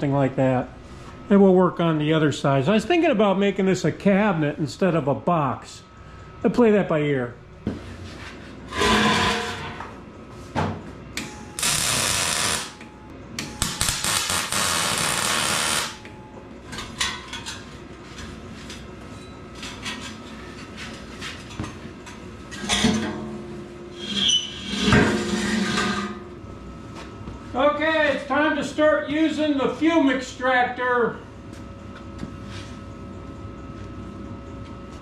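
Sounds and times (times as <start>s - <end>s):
wire feed whine: 11.2s - 16.3s
welding arc crackling: 11.6s - 12.8s, 13.6s - 16.0s.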